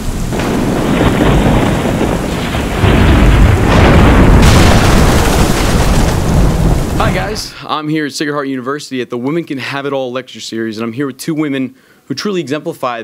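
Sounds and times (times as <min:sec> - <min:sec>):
rolling thunder booms: 0:00.0 - 0:07.5
rain hissing: 0:00.0 - 0:07.7.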